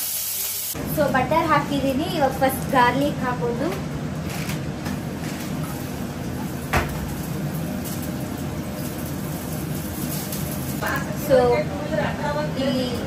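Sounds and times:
spatula in frying pan: 5.0s - 10.9s.

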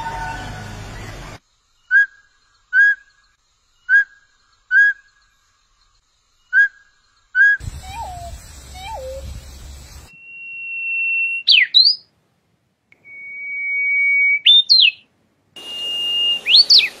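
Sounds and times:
songbird whistling: 1.9s - 3.2s, 3.9s - 5.1s, 6.5s - 12.1s, 13.0s - 15.0s, 15.6s - 17.0s
lower curving bird call: 7.4s - 12.0s, 15.6s - 17.0s.

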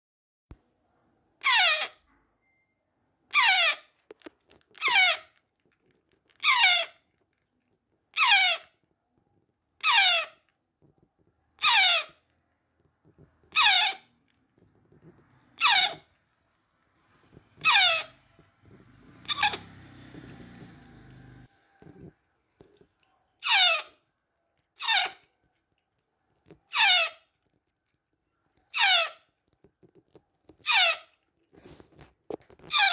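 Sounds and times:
parrot chick begging screeches: 1.4s - 2.0s, 3.3s - 3.9s, 4.8s - 5.3s, 6.4s - 7.0s, 8.2s - 8.7s, 9.8s - 10.4s, 11.6s - 12.2s, 13.5s - 14.0s, 15.6s - 16.1s, 17.6s - 18.2s, 19.0s - 21.5s, 23.4s - 24.0s, 24.8s - 25.2s, 26.7s - 27.2s, 28.7s - 29.2s, 30.6s - 31.1s.

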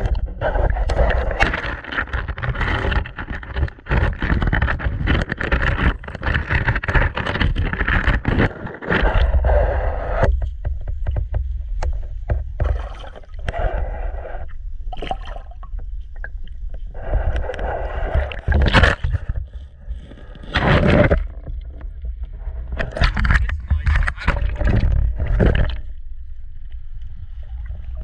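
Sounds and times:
underwater low rumble: 0.0s - 28.0s
water sloshing: 12.6s - 13.5s, 14.9s - 16.8s.

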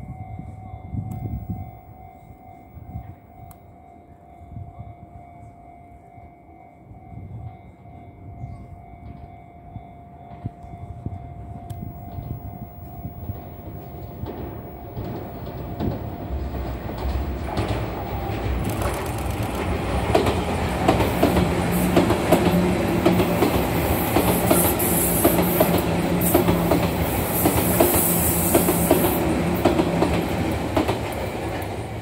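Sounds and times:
train low hum: 0.0s - 32.0s
train wheels clicking over rail joints: 11.7s - 32.0s.

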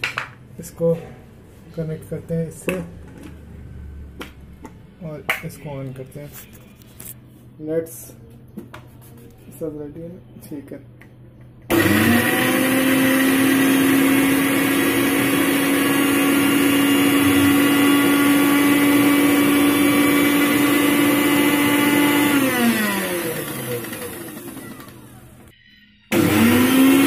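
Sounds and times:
mixer grinder motor whine: 11.7s - 25.5s, 26.1s - 27.0s.

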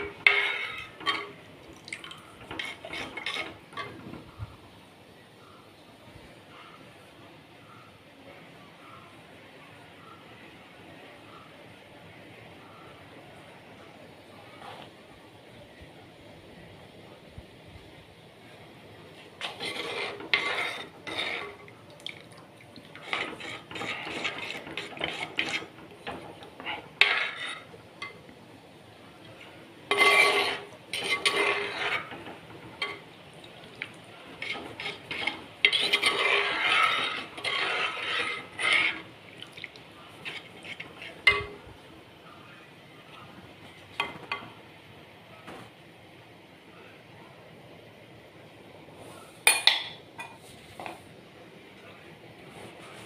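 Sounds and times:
spoon scraping in pot: 0.0s - 1.4s, 2.0s - 4.4s, 19.4s - 21.7s, 22.9s - 28.2s, 29.9s - 33.1s, 33.8s - 39.2s, 40.1s - 41.6s.

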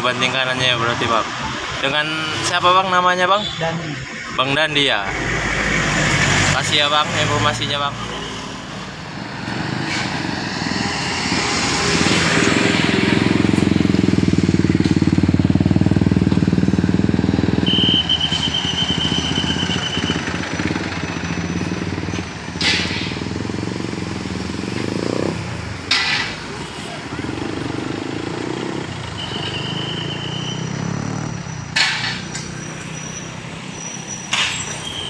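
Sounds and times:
road traffic passing: 0.0s - 35.0s
short high whistle tone: 17.7s - 20.1s.

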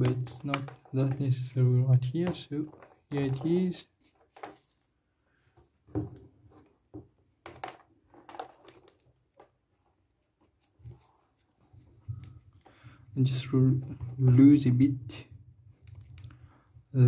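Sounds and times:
plastic parts clicking and tapping: 0.0s - 4.6s, 6.0s - 9.6s.

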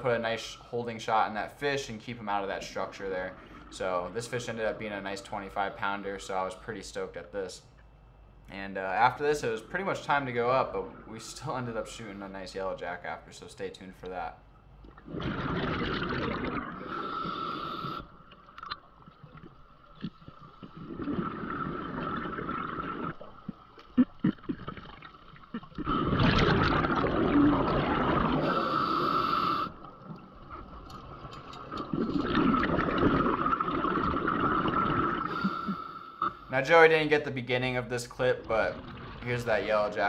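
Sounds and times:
gurgling exhaled bubbles: 14.9s - 36.4s, 38.3s - 40.0s
diver breathing through regulator: 16.8s - 18.2s, 28.4s - 29.8s, 35.1s - 36.5s.

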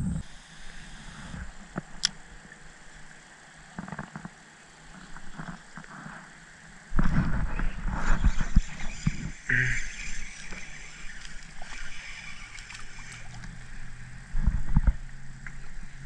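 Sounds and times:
microphone handling rumble: 7.0s - 9.8s, 13.2s - 16.0s.

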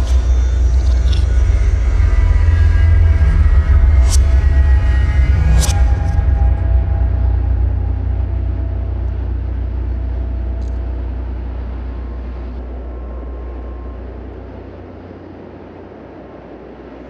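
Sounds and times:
road traffic rumble: 3.4s - 17.0s.

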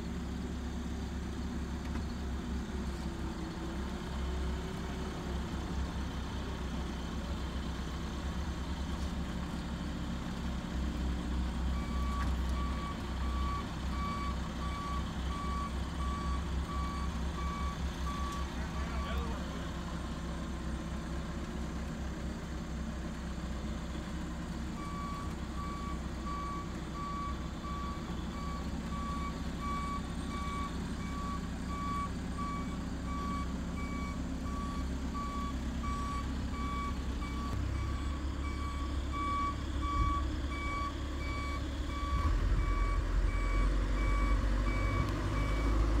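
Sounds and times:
diesel engine running low: 0.0s - 46.0s
back-up alarm beeping: 11.8s - 19.3s, 24.8s - 45.8s.

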